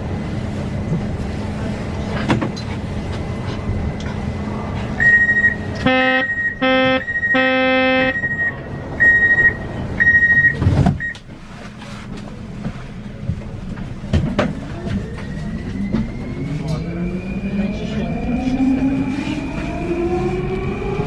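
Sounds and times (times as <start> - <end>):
low buzzer tones: 5.0 - 10.5.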